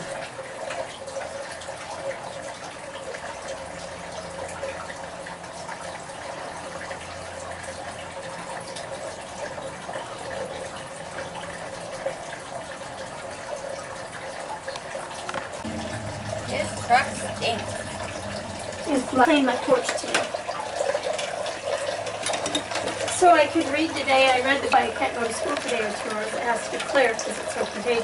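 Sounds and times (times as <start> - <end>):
running water rushing: 0.0 - 28.0
faint low hum: 15.6 - 19.8.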